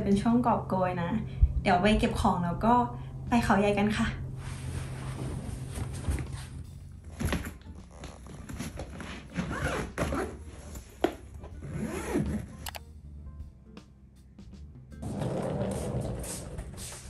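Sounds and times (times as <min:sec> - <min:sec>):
suitcase zipper rasping: 0:07.2 - 0:10.8, 0:11.5 - 0:12.7, 0:15.0 - 0:17.0.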